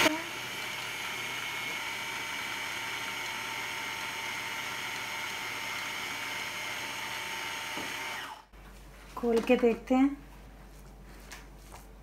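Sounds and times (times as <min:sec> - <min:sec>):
food processor motor whining: 0:00.0 - 0:08.5.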